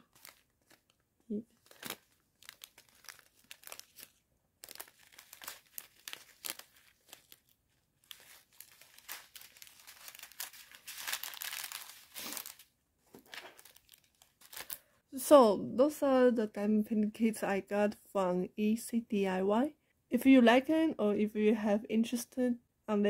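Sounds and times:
plastic bags crinkling and rustling: 0.0s - 14.9s.

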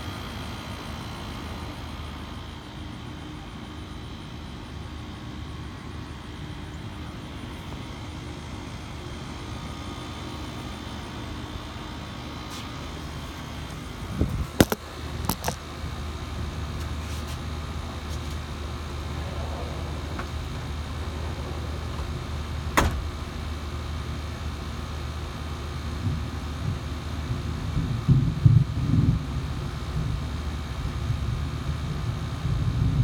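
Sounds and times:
low outdoor rumble: 13.0s - 33.0s
phone handling clicks and knocks: 14.6s - 15.6s.

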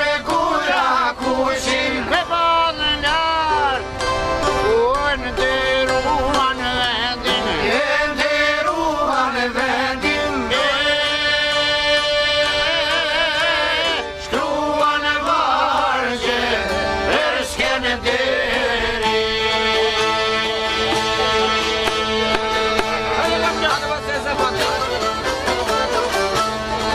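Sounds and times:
accordion: 0.0s - 26.9s
lutes: 0.0s - 26.9s
violin: 0.0s - 26.9s
frame drum: 20.8s - 23.8s.

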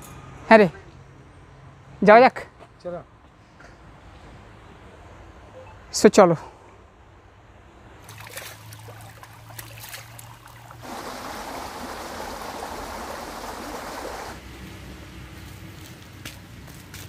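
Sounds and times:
stream trickling over rocks: 8.0s - 14.4s.

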